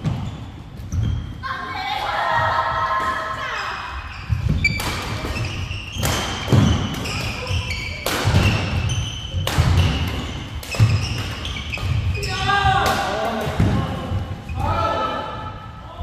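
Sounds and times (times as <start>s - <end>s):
shoes squeaking on court floor: 0.0s - 1.5s, 3.4s - 15.0s
rackets striking shuttlecock: 4.6s - 12.1s.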